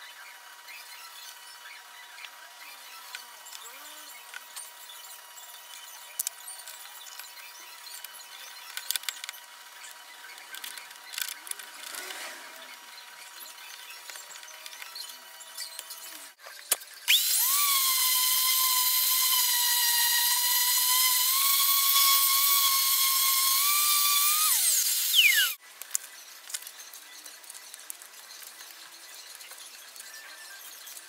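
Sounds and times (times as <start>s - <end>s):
palm sander whining: 17.1s - 25.6s.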